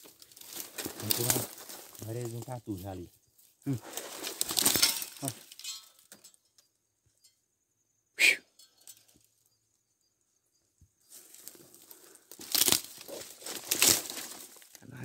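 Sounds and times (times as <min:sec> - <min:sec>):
twigs and brush rustling and snapping: 0:00.0 - 0:06.7, 0:11.1 - 0:14.9.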